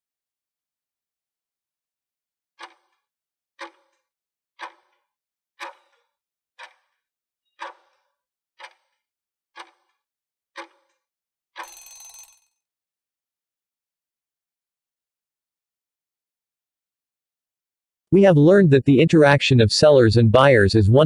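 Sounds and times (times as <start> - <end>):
clock-like ticks: 2.6 - 4.0, 4.6 - 5.0, 5.6 - 6.0, 6.6 - 8.0, 8.6 - 9.9, 10.6 - 11.0
timer alert sound: 11.6 - 12.4.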